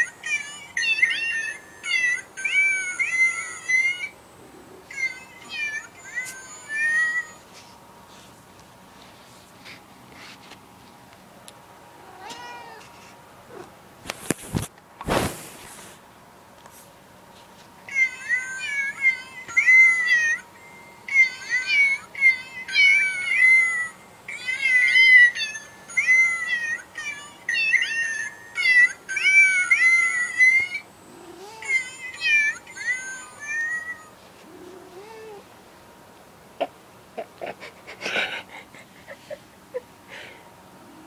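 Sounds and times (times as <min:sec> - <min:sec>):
musical card meow tune: 0:00.0 - 0:04.1, 0:04.9 - 0:07.4, 0:17.9 - 0:20.5, 0:21.1 - 0:30.8, 0:31.4 - 0:34.2.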